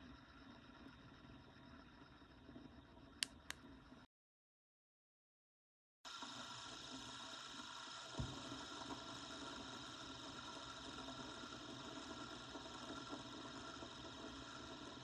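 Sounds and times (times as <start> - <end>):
spinning toy whirring: 6.1 - 15.0.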